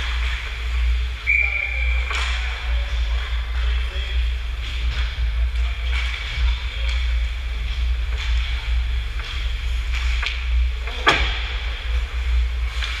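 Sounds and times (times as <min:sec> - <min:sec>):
low rumble: 0:00.0 - 0:13.0
hockey sticks clicking: 0:02.0 - 0:11.5.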